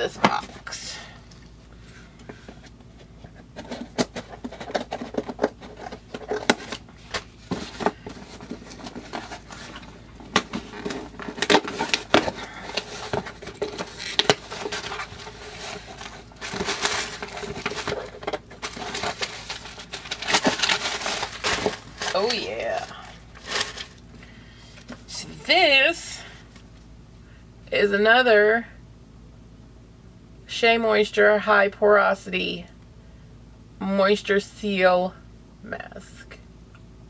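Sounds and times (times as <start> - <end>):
packaging crinkling and rustling: 2.7 - 24.1.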